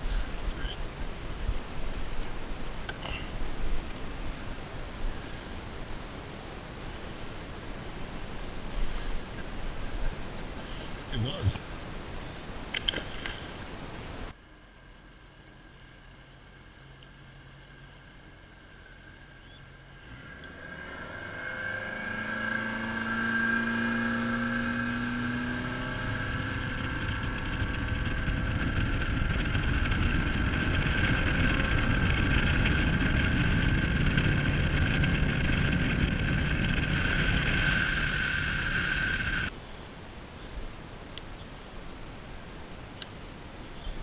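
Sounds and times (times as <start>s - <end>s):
water and wind noise: 0.0s - 44.0s
outboard motor throttling up: 21.8s - 39.5s.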